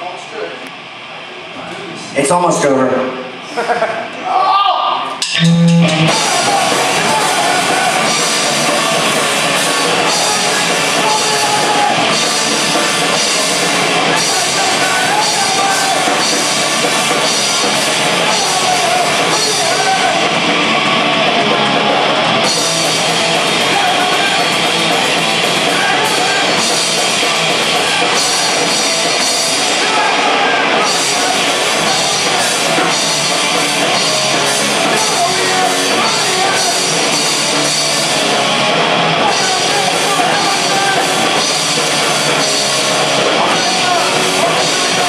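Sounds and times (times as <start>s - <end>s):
electric guitars: 5.1s - 45.0s
drum kit: 5.2s - 45.0s.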